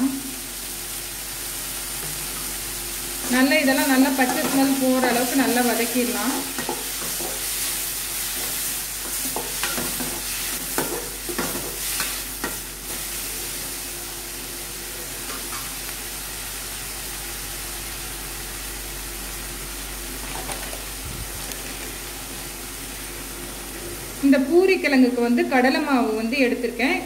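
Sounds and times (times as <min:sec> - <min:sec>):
food sizzling in oil: 0:00.0 - 0:26.6
spatula scraping and clattering on pan: 0:04.2 - 0:05.4, 0:06.4 - 0:12.7.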